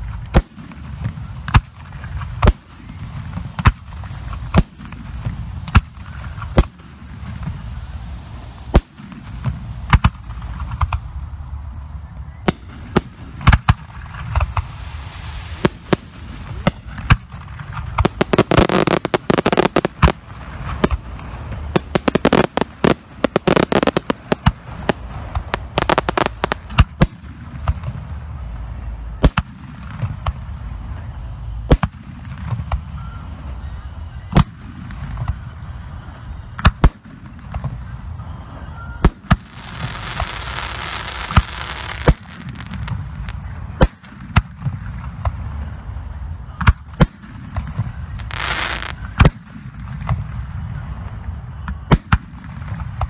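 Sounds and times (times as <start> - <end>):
rapid crackling reports: 12.0 - 27.0
firework shells bursting: 15.6 - 27.7.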